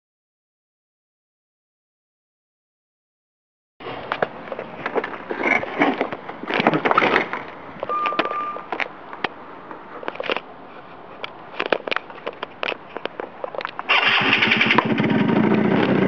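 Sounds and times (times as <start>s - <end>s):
short steady beep: 7.9s - 8.7s.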